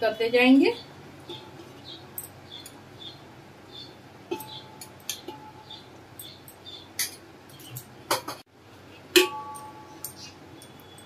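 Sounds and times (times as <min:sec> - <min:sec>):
metal utensil clinking on pot: 0:04.3 - 0:07.2.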